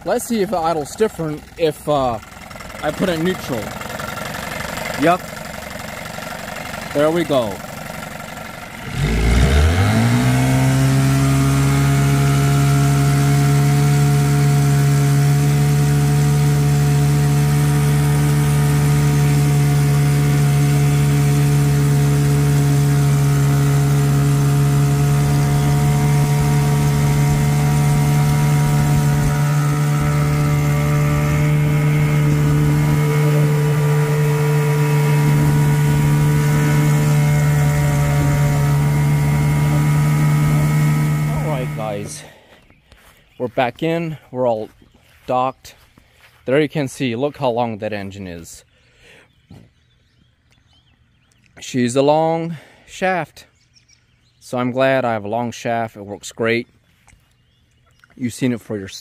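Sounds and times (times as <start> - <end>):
outboard motor running: 0.0 - 46.4.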